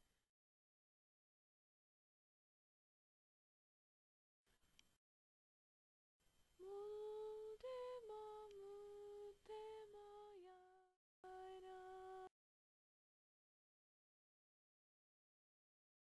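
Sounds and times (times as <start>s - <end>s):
person humming a slow tune: 6.6s - 12.4s.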